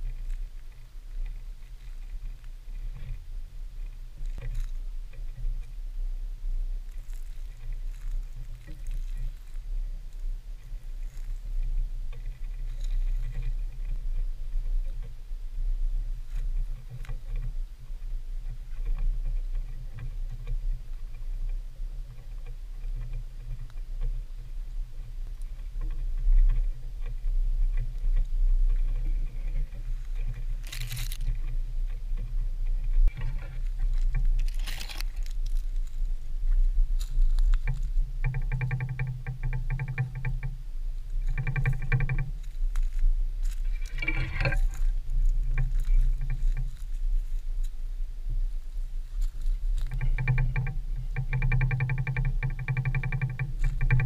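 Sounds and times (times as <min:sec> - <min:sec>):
low rumble: 0:00.0 - 0:54.0
vegetation brushing rustles: 0:06.6 - 0:14.1, 0:29.8 - 0:31.6, 0:33.1 - 0:38.0, 0:41.1 - 0:50.0
footsteps crunching through dry leaves: 0:30.6 - 0:31.3, 0:33.7 - 0:37.9.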